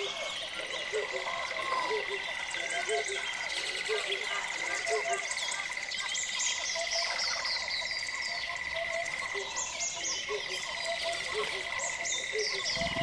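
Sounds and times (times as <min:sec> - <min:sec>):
birds chirping: 0:00.0 - 0:13.0
insect trill: 0:00.0 - 0:13.0
low frog-like calls: 0:12.4 - 0:13.0.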